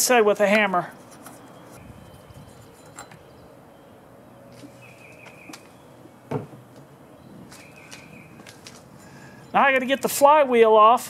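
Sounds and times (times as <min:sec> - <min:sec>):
light knocks: 0:06.3 - 0:06.9.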